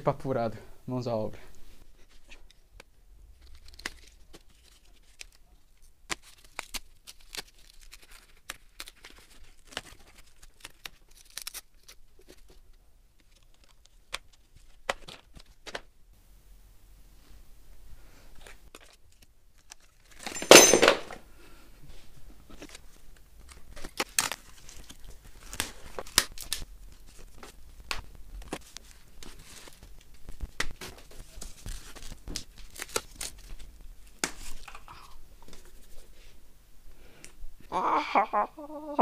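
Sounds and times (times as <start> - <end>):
wrapping rustling and crinkling: 1.5 - 15.9, 18.1 - 20.7, 21.9 - 36.4
packing material ripping: 3.3 - 12.6, 18.4 - 20.3, 22.6 - 35.8.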